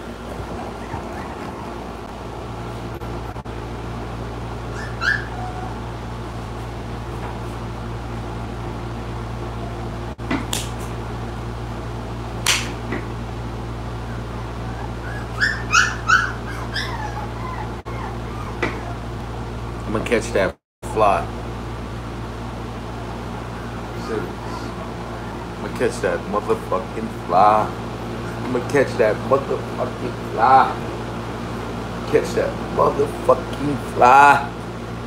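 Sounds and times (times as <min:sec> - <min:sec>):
steady low hum: 0:00.0 - 0:35.0
dog whining and whimpering: 0:00.2 - 0:02.1, 0:04.6 - 0:06.0, 0:14.0 - 0:19.2, 0:23.4 - 0:25.6.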